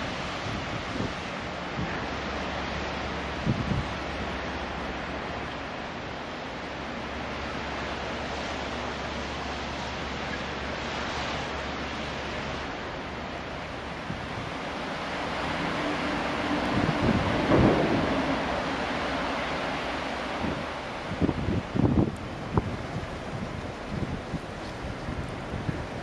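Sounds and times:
wind buffeting microphone: 0:00.0 - 0:05.5, 0:13.6 - 0:26.0
low steady rumble: 0:00.0 - 0:26.0
wind in a snowstorm: 0:00.0 - 0:26.0.

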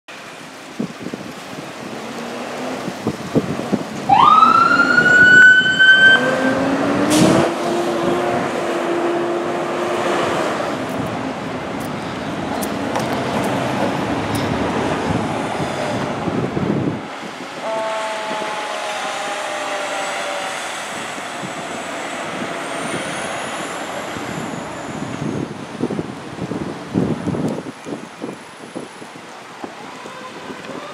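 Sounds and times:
fire trucks pulling out: 0:00.2 - 0:17.6, 0:18.8 - 0:30.9
mechanical siren wailing: 0:04.1 - 0:06.8, 0:17.7 - 0:23.4, 0:29.8 - 0:30.9.

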